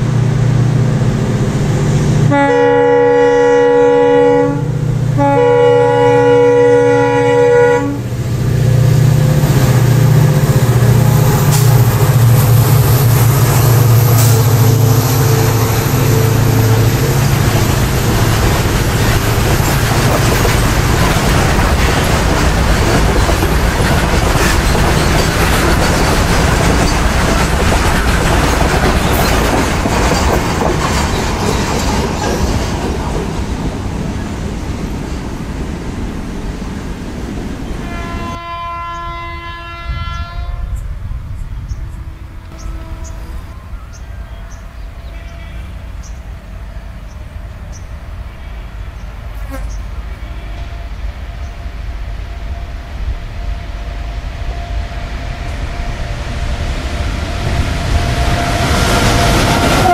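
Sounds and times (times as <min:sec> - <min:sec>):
diesel locomotive drone: 0:00.0 - 0:59.9
train wheels clattering: 0:08.2 - 0:34.0.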